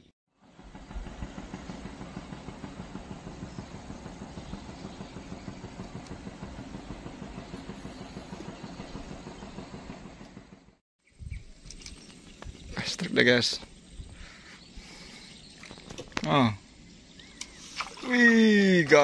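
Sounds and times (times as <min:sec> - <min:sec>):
small boat engine putter: 0:00.5 - 0:10.8
constant hiss: 0:11.1 - 0:19.0.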